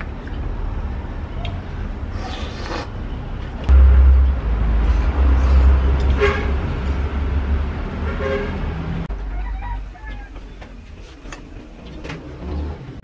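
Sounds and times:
vehicle rumble passing: 3.0 - 13.0.

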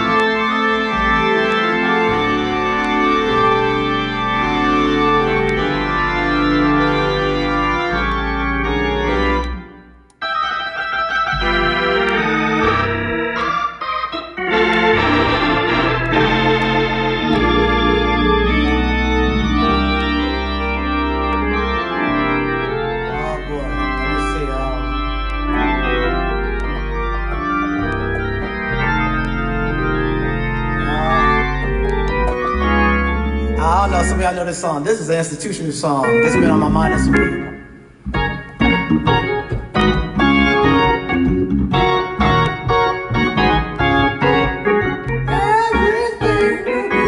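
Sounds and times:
deep organ bass notes: 0.0 - 47.0
organ chords: 0.0 - 47.0.

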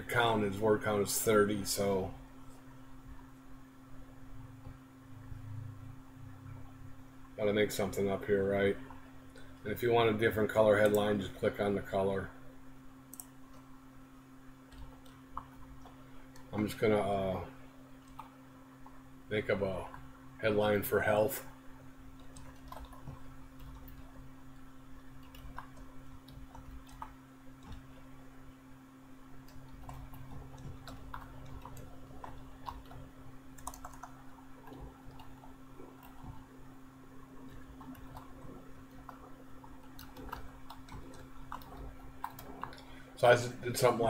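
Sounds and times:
steady low hum: 0.0 - 44.0
typing on keyboard: 22.2 - 24.1, 25.2 - 27.9, 29.4 - 33.0, 33.6 - 36.4, 39.9 - 42.8.

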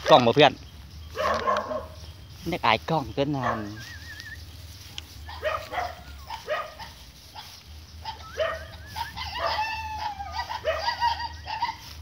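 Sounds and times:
high animal yelps: 1.1 - 2.0, 3.3 - 4.5, 5.2 - 12.0
bird warbling whistle: 3.6 - 4.6, 8.0 - 10.0.

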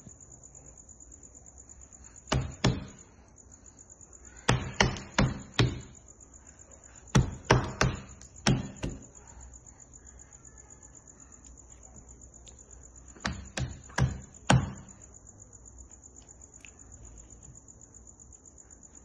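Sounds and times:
hands banging on plastic tray: 4.5 - 6.0, 7.1 - 9.0.

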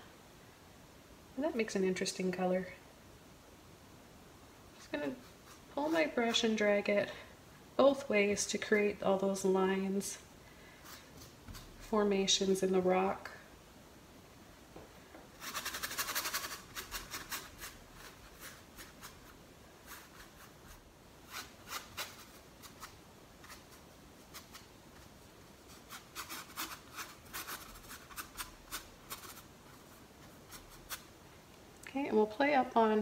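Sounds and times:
paintbrush scratching on canvas: 15.4 - 31.1.

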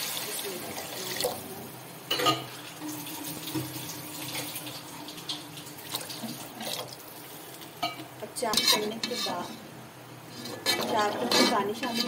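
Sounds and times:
water pouring into pot: 2.6 - 7.6.

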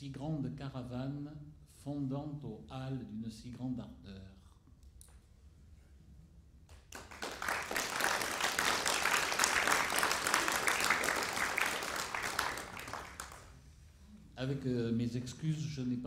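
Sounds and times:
audience applauding: 6.9 - 13.6.

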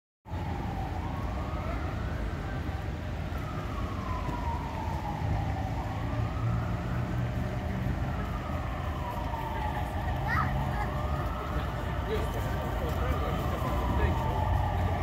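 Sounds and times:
emergency siren wailing: 0.3 - 15.0.

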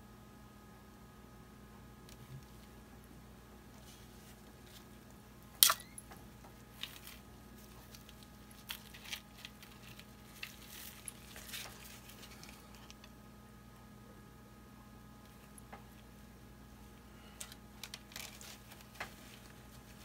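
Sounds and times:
steady low hum: 0.0 - 20.0
sharp loud click: 5.6 - 6.0
soft clicks and rustles: 6.0 - 13.2, 17.3 - 20.0.

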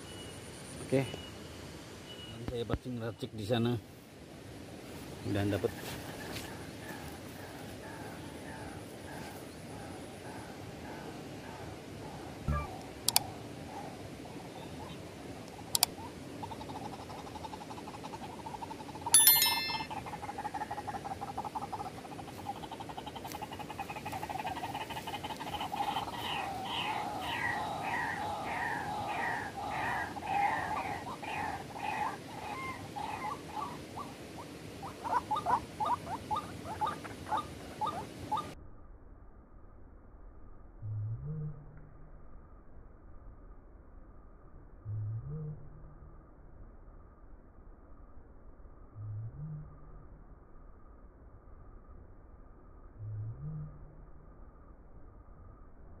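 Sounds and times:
waterhen calling: 16.0 - 38.6
notification bell ding: 19.2 - 20.0.

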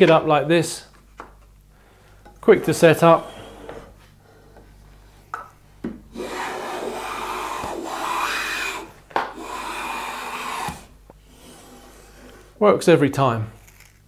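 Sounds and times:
hand plane shaving wood: 6.1 - 12.5.

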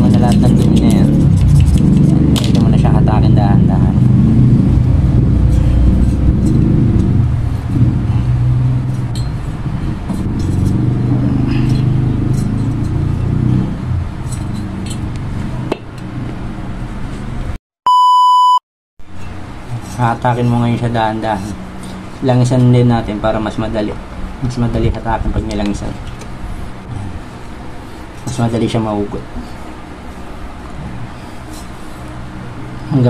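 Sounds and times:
steady low rumble: 0.0 - 17.6
test-tone beep: 17.9 - 18.6.

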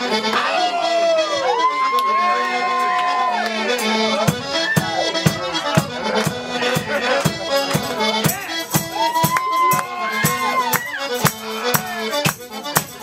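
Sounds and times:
tuba and bass: 0.0 - 0.7, 3.5 - 9.0, 10.1 - 13.0
drum beat: 4.2 - 13.0.

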